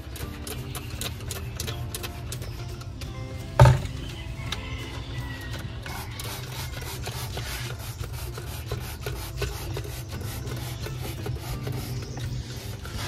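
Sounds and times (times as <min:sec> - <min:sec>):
scouring pad scrubbing: 0:05.9 - 0:13.0.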